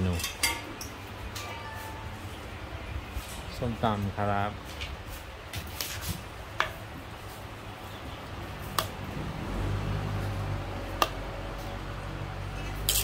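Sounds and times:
utensils clicking in clay mortar: 0:12.8 - 0:13.0.

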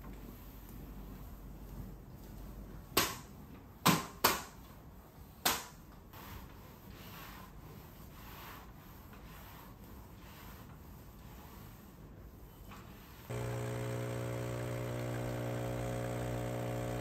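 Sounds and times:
mop swishing over wooden floor: 0:06.2 - 0:13.2.

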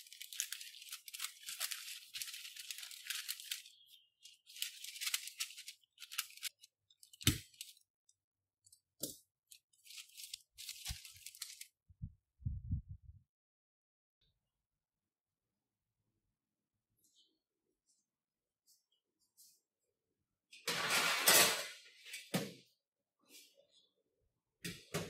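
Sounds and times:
baking paper rustling: 0:00.0 - 0:11.8, 0:20.6 - 0:22.2
soft low thumps: 0:11.9 - 0:13.2.

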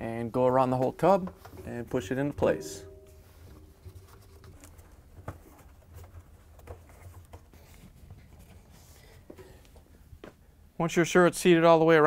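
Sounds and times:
low steady hum: 0:00.0 - 0:06.3.

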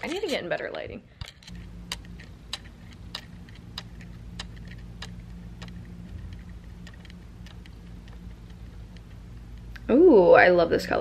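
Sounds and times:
sharp ticking: 0:00.0 - 0:10.0
steady low hum: 0:00.0 - 0:11.0.

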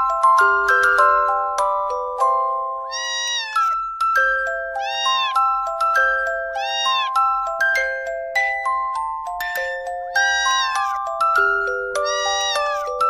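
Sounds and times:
glockenspiel-like melody: 0:00.0 - 0:13.0
cat meowing: 0:02.9 - 0:03.8, 0:04.8 - 0:05.6, 0:06.5 - 0:07.2, 0:09.4 - 0:11.0, 0:12.0 - 0:12.9.

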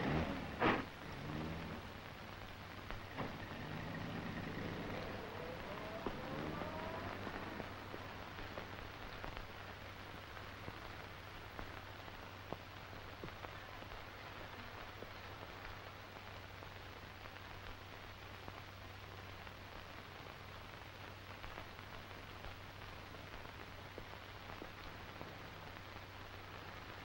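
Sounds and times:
low hum: 0:00.0 - 0:16.0
faint clicks and crackles: 0:00.0 - 0:27.0
steady hiss: 0:00.0 - 0:27.0.

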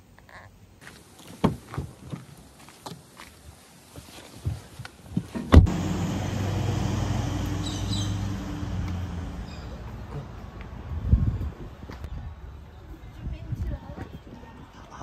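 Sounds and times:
vehicle engine humming: 0:05.6 - 0:12.1.

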